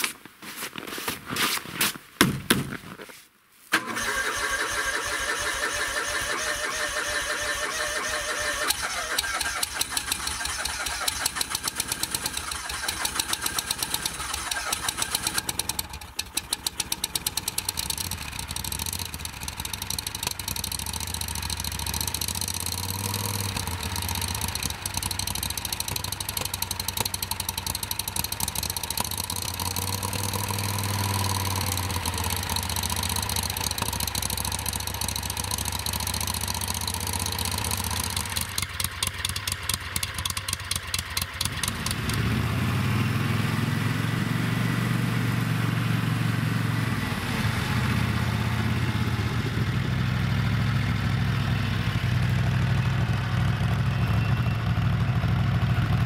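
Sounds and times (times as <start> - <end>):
knocks and scrapes: 0.0 - 3.3
snowmobile engine starting and running: 3.7 - 56.0.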